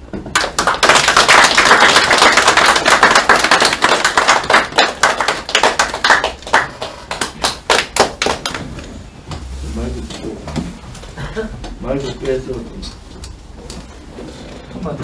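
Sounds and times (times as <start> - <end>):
group applauding: 0.2 - 9.0.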